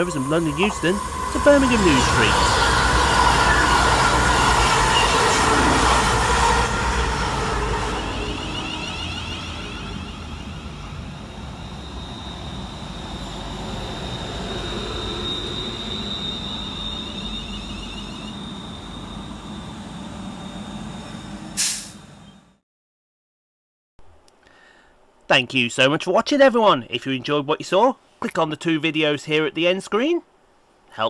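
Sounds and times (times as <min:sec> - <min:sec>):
diesel trains passing at speed: 0:00.0 - 0:22.6
electric train whine slowing: 0:00.0 - 0:22.6.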